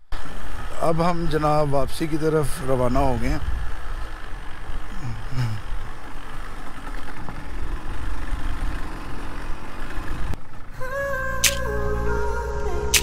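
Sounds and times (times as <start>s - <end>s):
road and wind noise: 0.0s - 13.0s
small motorcycle engine running: 2.8s - 11.4s.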